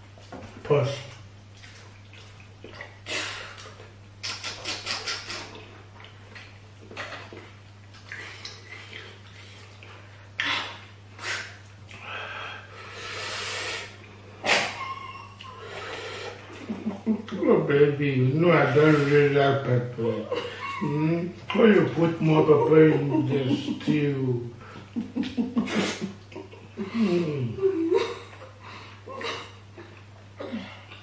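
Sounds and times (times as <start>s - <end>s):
lip-smacking: 1.1s - 12.1s, 13.3s - 17.4s
person chewing: 1.3s - 12.1s
slurping: 1.6s - 12.1s
sharp mouth click: 4.2s - 5.6s.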